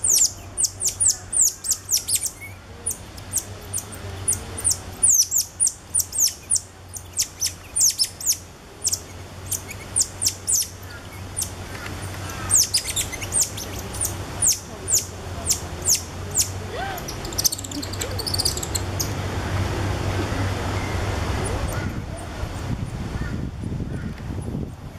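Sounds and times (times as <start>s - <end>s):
monkeys chirping: 0.0s - 19.5s
low steady hum: 0.0s - 24.9s.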